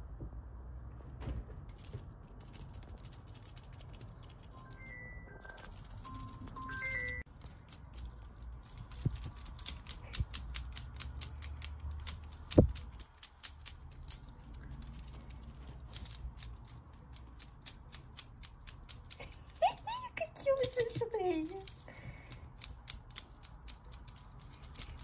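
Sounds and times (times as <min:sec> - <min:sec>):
rapid irregular clicking: 0:05.5 - 0:19.6, 0:20.6 - 0:25.0.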